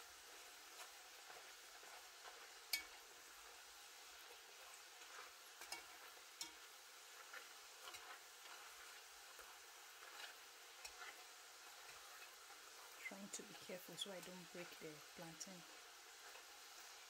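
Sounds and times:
slices deep-frying in oil: 0.0 - 17.0
metal fork clicking on pot: 2.7 - 3.0, 5.6 - 6.6.

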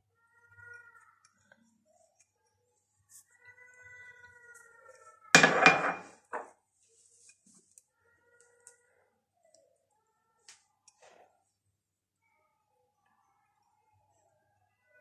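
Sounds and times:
dishes clattering: 5.4 - 6.5.

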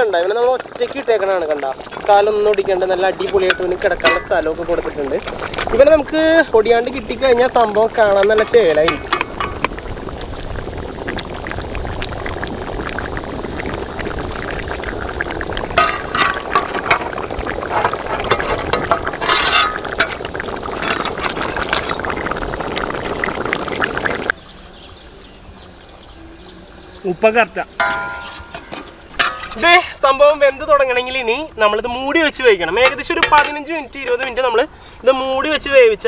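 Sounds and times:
thick gravy bubbling in a wok: 0.0 - 26.6.

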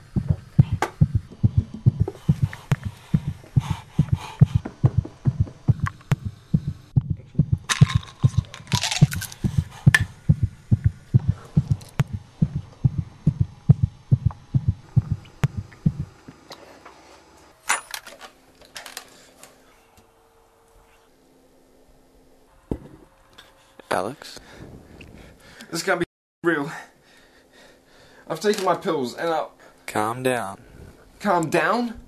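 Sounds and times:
heartbeat thumps: 0.0 - 16.3.

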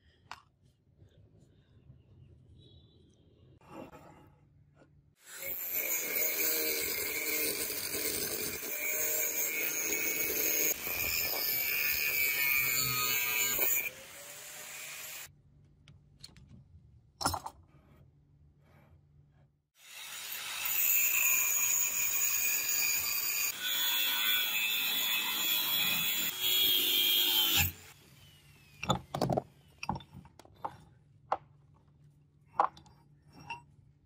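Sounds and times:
angle grinder cutting steel: 5.2 - 15.3, 19.8 - 29.0.

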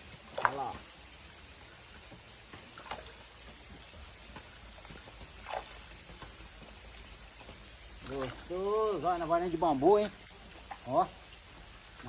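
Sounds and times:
pouring trickling water: 0.0 - 12.0
fish splashing at surface: 2.1 - 8.9.

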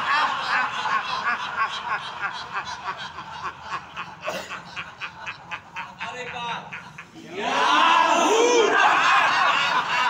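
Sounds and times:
group of people laughing: 0.0 - 10.0.

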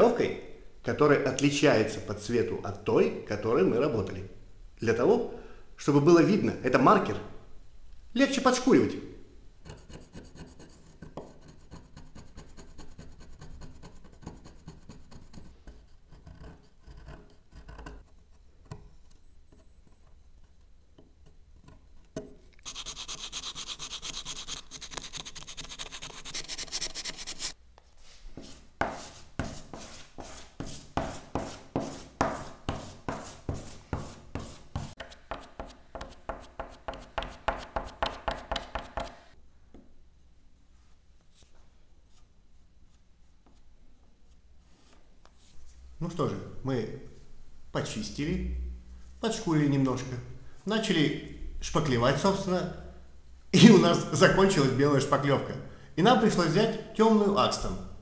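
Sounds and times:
blade scraping wood: 22.6 - 27.6
putty knife scraping strokes: 22.6 - 27.6, 28.4 - 39.2
sanding sponge rubbing wood: 22.6 - 27.6, 28.4 - 35.7.

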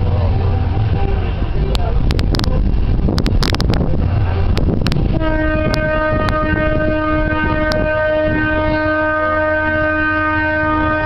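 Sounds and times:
train rumbling over viaduct: 0.0 - 11.0
train horn long blast: 4.5 - 11.0.

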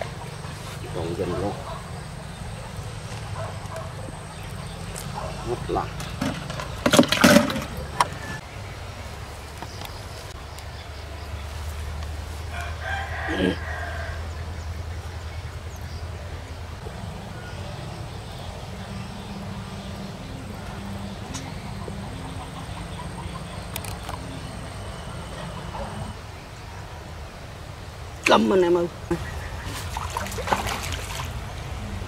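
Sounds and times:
rooster crowing: 7.8 - 8.4, 12.5 - 14.3.

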